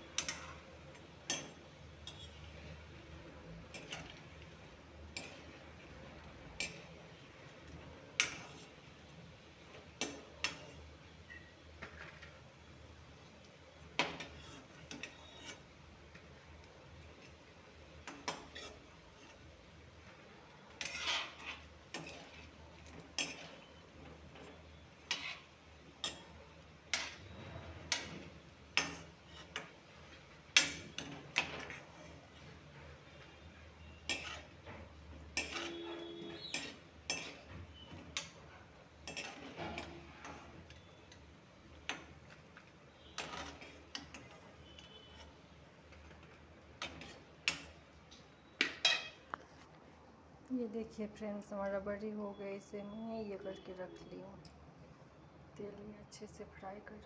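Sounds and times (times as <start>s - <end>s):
metal spatula scraping steel pan: 0.1s - 2.8s, 3.6s - 4.4s, 5.0s - 7.1s, 7.7s - 8.8s, 10.0s - 12.3s, 14.0s - 15.7s, 18.1s - 19.5s, 20.6s - 41.2s, 42.9s - 46.2s, 46.8s - 47.7s, 48.4s - 49.3s.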